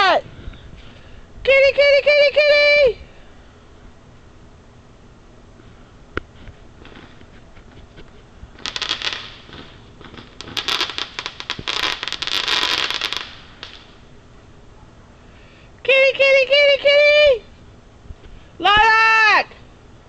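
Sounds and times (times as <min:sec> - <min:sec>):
firework crackle: 0:06.8 - 0:07.4, 0:08.5 - 0:14.1.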